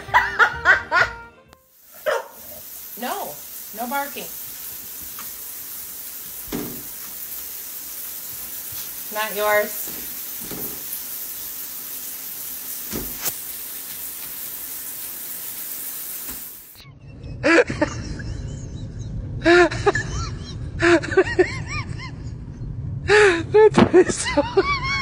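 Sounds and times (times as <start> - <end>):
steady hiss: 1.6 - 16.8.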